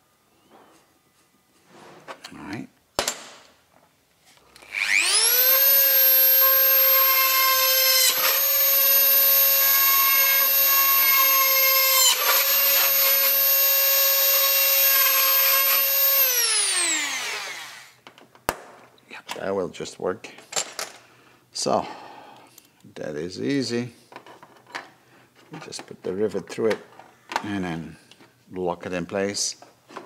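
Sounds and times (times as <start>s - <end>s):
mini drill whining: 4.5s - 18.0s.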